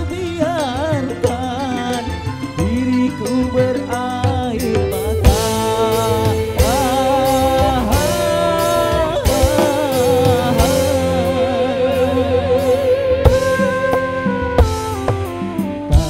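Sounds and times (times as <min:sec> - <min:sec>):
man singing with vibrato: 0:00.0 - 0:14.5
keyboard backing: 0:00.0 - 0:16.0
hand drum strokes: 0:05.3 - 0:12.1.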